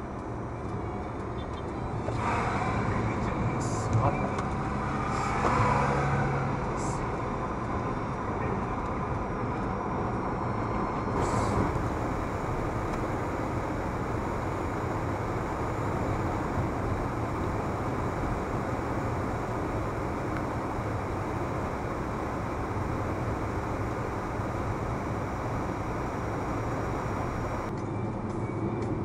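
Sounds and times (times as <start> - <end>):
low engine drone: 11.1 - 27.8
car cabin road noise: 11.2 - 27.8.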